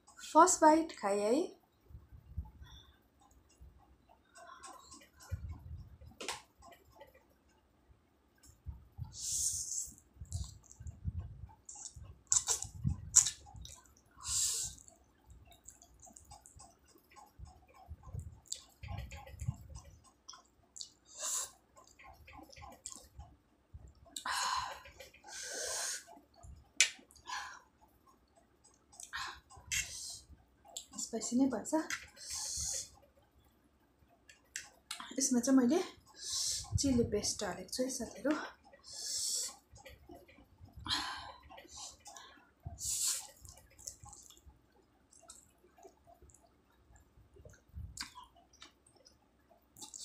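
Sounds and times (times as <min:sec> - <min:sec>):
chewing with wet clicks: 0:10.2 - 0:24.3, 0:27.8 - 0:29.9, 0:43.2 - 0:50.0.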